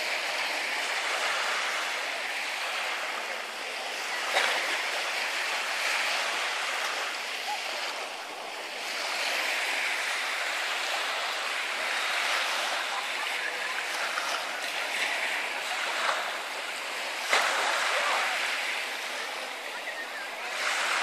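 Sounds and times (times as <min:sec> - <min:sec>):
small waves washing onto beach: 0:00.0 - 0:21.0.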